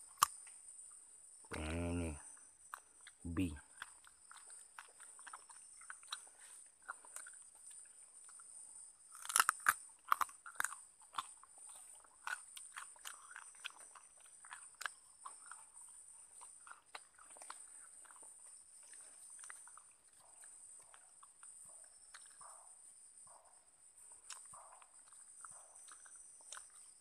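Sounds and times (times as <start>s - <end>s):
forest insects droning: 0.0s - 27.0s
crisp crunches and crackles: 9.1s - 11.3s.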